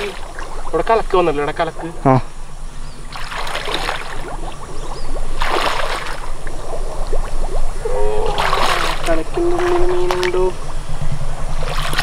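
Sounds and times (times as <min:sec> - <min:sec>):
water sloshing around wading legs: 0:00.0 - 0:01.8, 0:03.0 - 0:12.0
loud water splash: 0:03.1 - 0:10.8.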